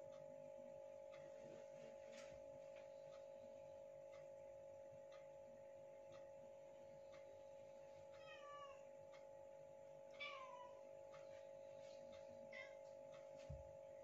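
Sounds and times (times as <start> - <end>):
soft ticking: 0.0 - 14.0
steady low hum: 0.0 - 14.0
cat meowing: 8.2 - 8.8, 10.2 - 10.8, 12.5 - 12.8.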